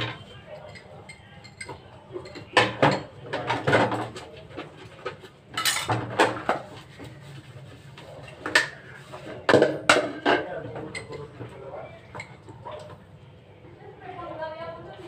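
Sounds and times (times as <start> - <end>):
dishes clinking in a sink: 0.0 - 6.8, 8.3 - 13.0.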